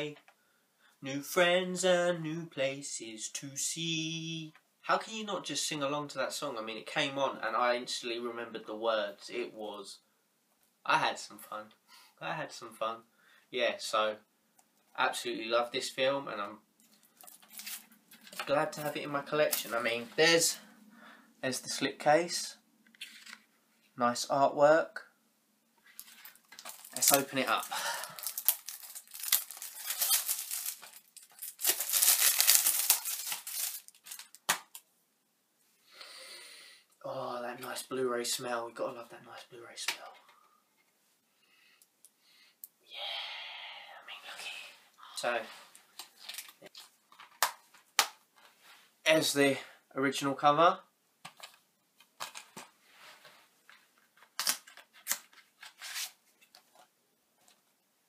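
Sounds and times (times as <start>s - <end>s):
plastic wrap crinkling: 16.9s - 19.9s, 25.9s - 34.8s.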